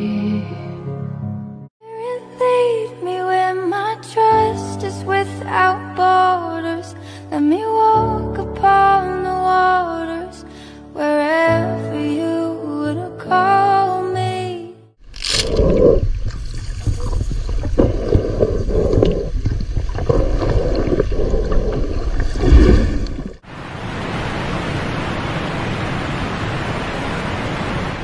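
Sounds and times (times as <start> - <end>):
wind: 15.0 - 28.0
underwater gurgling water: 15.4 - 23.4
underwater knocks: 15.5 - 23.4
sea surf: 22.4 - 28.0.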